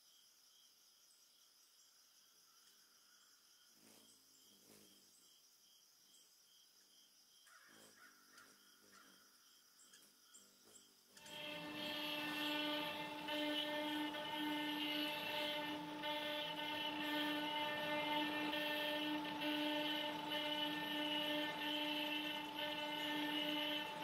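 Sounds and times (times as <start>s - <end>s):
router spindle cutting wood: 11.2s - 24.0s.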